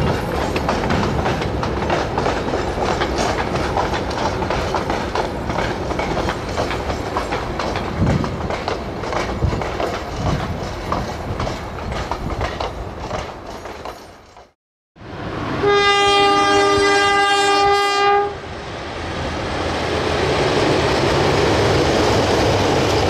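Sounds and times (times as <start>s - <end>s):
train wheels clattering over rail joints: 0.0s - 14.6s.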